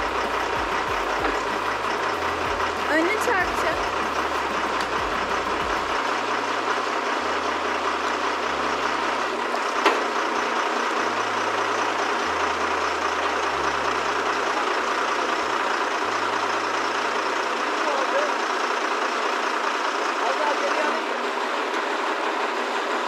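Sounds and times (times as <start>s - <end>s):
crane engine running: 0.0s - 23.0s.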